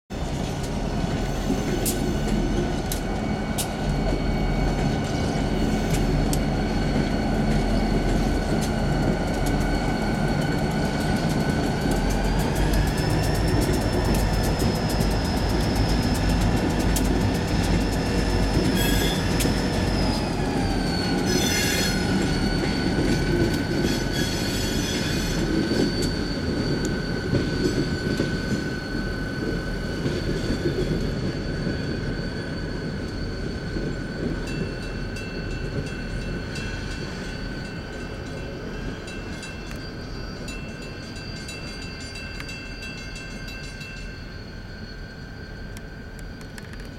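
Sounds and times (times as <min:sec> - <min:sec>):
diesel locomotive engines rumbling: 0:00.1 - 0:46.9
wheels clicking on rail joints: 0:00.2 - 0:44.5, 0:45.7 - 0:46.9
high-pitched wheel squeal: 0:03.1 - 0:46.7.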